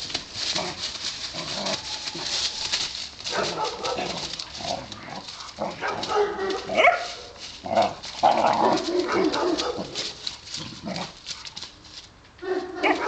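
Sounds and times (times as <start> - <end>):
puppies barking and yipping: 0.0 - 11.8, 12.4 - 13.0
dry leaves crackling underfoot: 0.0 - 13.0.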